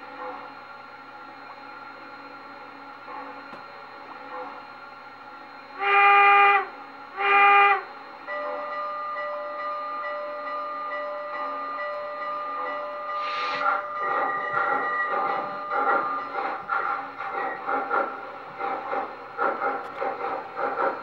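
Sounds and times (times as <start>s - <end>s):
model train steam whistle blasts: 5.8s - 8.7s, 13.0s - 13.8s
steady whistle tone: 12.4s - 18.1s.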